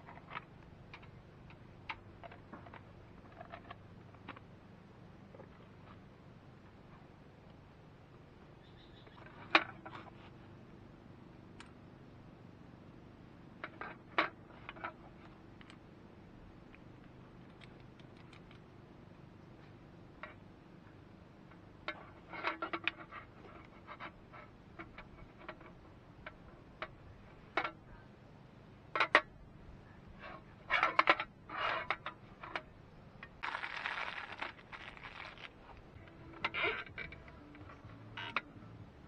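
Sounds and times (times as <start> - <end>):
metal parts clicking and tapping: 17.4 - 18.6
rustling: 30.1 - 38.4.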